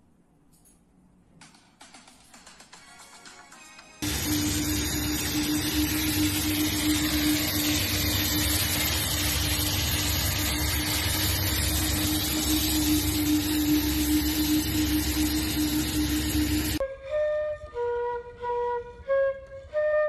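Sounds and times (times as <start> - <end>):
dust extraction vacuum hissing: 4.0 - 16.8
power tool humming: 4.0 - 16.8.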